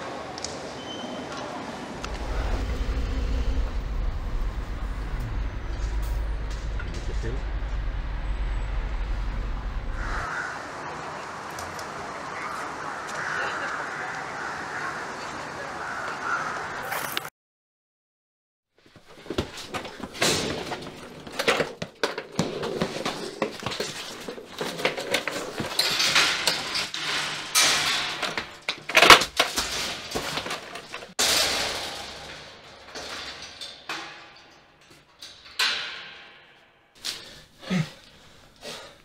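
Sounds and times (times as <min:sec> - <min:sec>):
knocks bangs and rattles: 0:02.0 - 0:10.0.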